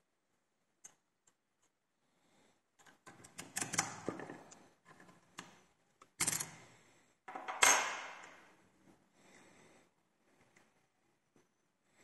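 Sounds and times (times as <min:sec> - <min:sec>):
lockpicking tools clicking and rattling: 0:02.8 - 0:06.6.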